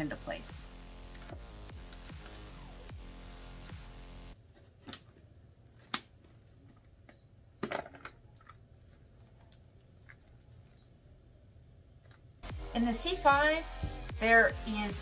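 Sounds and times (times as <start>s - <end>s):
background music: 0.0s - 4.4s, 12.4s - 15.0s.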